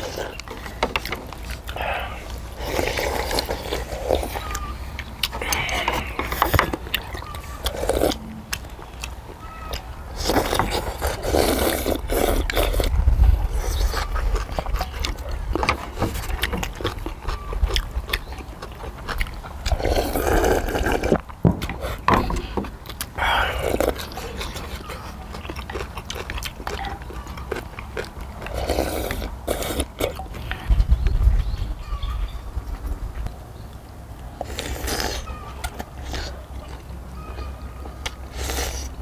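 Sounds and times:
chewing: 0.0s - 31.2s, 34.4s - 39.0s
slurping noodles: 10.2s - 14.2s, 19.7s - 21.2s, 28.5s - 30.2s.

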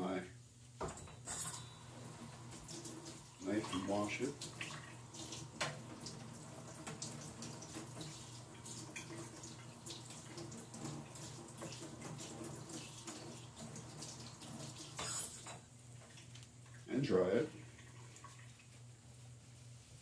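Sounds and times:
tap water splashing: 2.5s - 16.5s.

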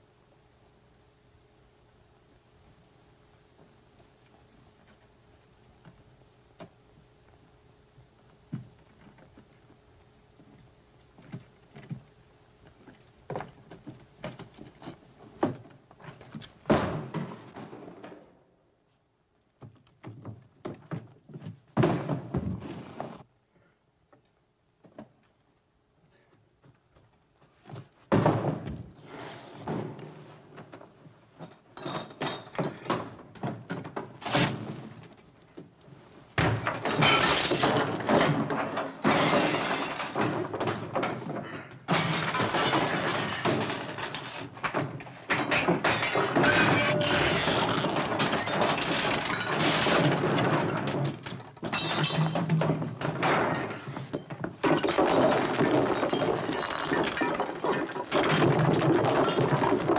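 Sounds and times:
objects thudding: 20.1s - 23.2s, 27.7s - 35.2s, 36.3s - 59.9s
furniture crashing: 21.8s - 23.2s, 36.4s - 59.9s
glass breaking: 36.4s - 40.8s, 41.9s - 44.3s, 45.3s - 50.5s, 51.5s - 52.6s, 54.6s - 59.9s.

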